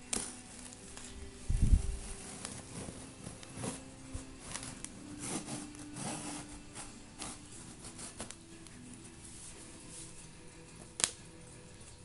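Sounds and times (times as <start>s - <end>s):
hands scraping cardboard: 1.9s - 8.4s.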